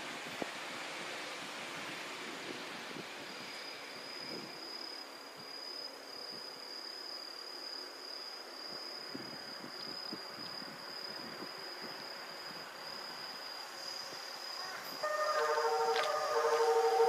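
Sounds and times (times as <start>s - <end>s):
background hiss: 0.0s - 17.0s
insect trilling: 13.9s - 17.0s.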